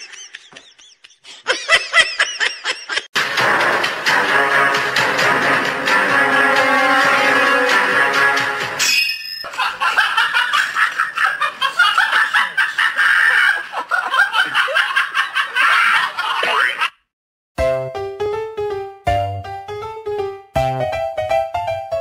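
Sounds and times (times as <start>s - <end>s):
high-pitched laughter: 9.4s - 17.0s.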